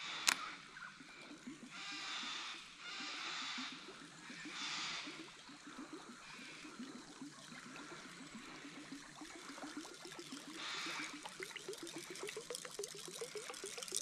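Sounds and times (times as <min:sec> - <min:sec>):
lure gurgling through water: 0:03.0 - 0:14.0.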